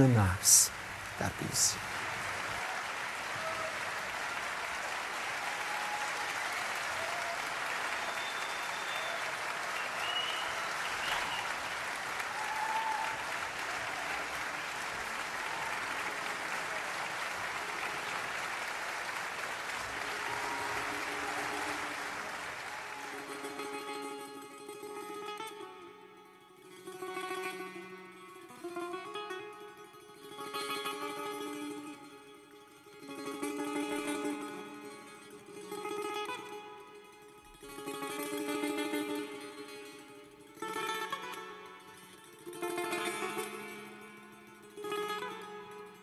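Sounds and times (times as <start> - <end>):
audience applauding: 0.0 - 23.7
plucked string music: 23.2 - 46.0.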